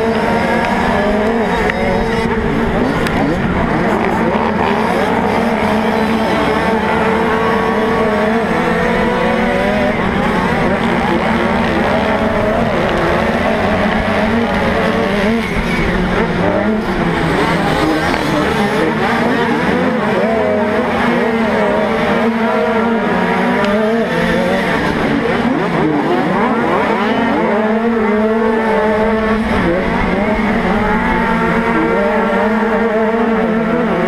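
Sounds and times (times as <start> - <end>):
motocross bike engines revving: 0.0 - 34.0.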